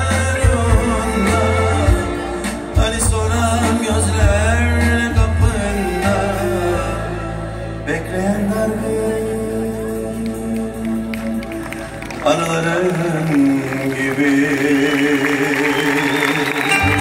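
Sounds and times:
drum kit: 0:00.0 - 0:07.0
heavy bass line: 0:00.0 - 0:12.2
keyboard: 0:00.0 - 0:17.0.

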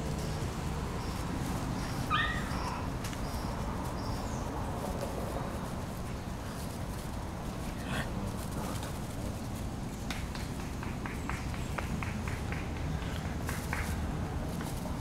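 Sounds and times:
puppies play-fighting: 0:00.8 - 0:09.6
puppy high-pitched squeal: 0:02.1 - 0:02.9.

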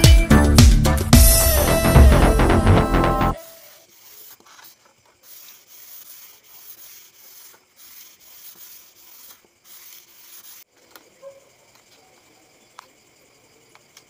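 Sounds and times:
sandpaper rubbing on wood: 0:03.4 - 0:10.7.

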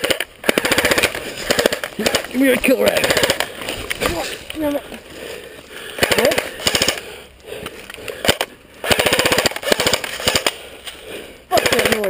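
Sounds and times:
airsoft guns firing: 0:00.0 - 0:03.6, 0:05.9 - 0:07.2, 0:08.2 - 0:10.7, 0:11.5 - 0:12.0.

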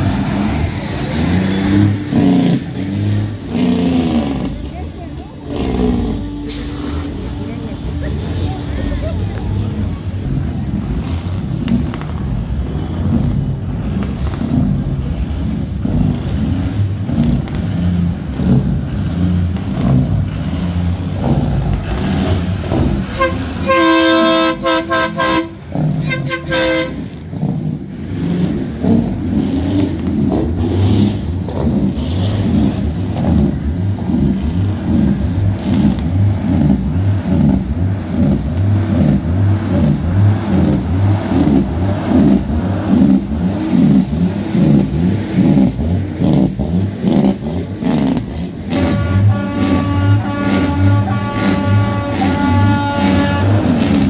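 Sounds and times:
diesel truck engines passing: 0:00.0 - 0:54.0
truck air horn blasts: 0:23.1 - 0:27.2, 0:48.7 - 0:54.0.

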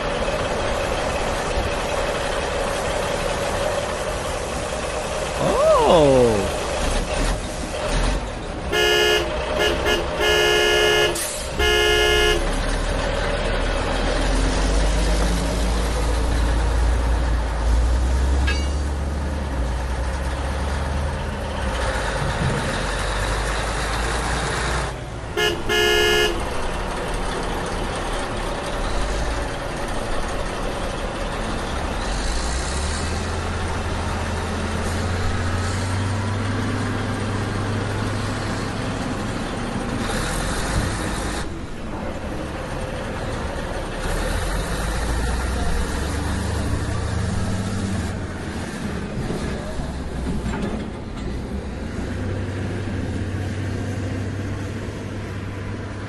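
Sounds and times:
truck engine rumbling: 0:00.0 - 0:56.0
horn honking short blasts: 0:08.7 - 0:12.6, 0:25.4 - 0:26.6.

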